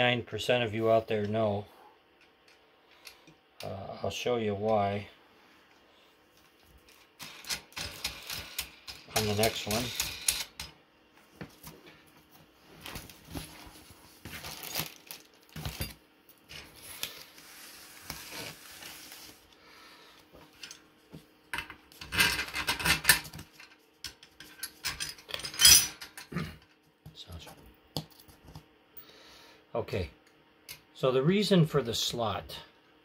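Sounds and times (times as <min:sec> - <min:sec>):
metal brackets clinking and scraping: 0:22.0 - 0:26.3.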